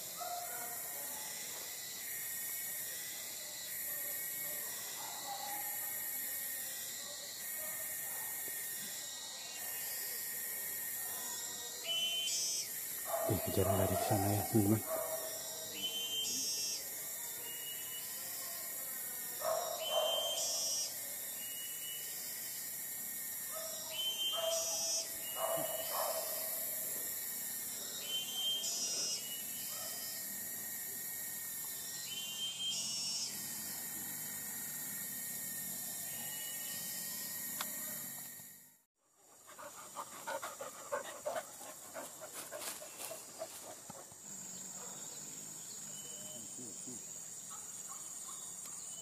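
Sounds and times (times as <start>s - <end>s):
insects chirring: 0.0s - 49.0s
steady high-pitched hiss: 0.0s - 49.0s
dog panting fast: 39.4s - 42.9s.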